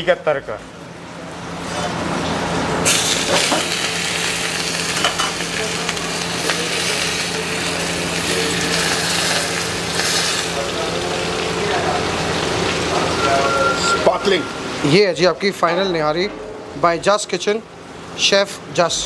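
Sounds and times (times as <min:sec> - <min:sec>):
hot oil sizzling: 0:01.6 - 0:15.5
low hum: 0:12.1 - 0:14.9, 0:15.7 - 0:18.1.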